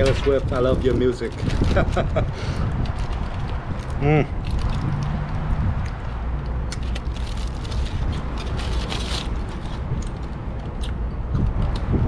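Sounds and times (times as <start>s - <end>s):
foil crinkling: 0.0s - 2.2s, 6.8s - 9.9s
wind buffeting microphone: 0.0s - 12.0s.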